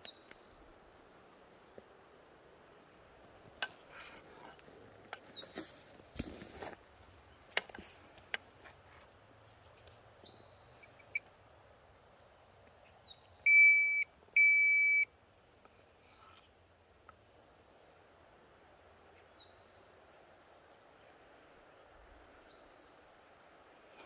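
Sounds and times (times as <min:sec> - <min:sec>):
loud electronic beeps: 0:13.5 - 0:15.1
short high chirps: 0:13.5 - 0:15.1.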